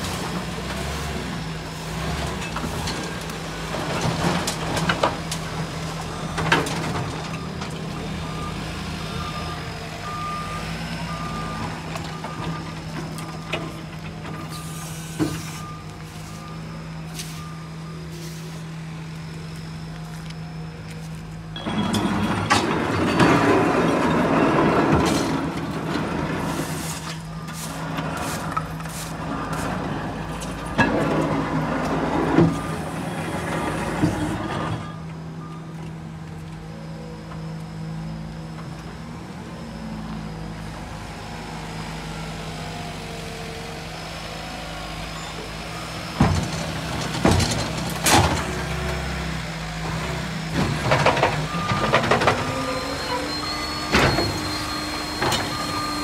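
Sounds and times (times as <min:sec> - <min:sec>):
garbage truck engine running: 0:00.0 - 0:56.0.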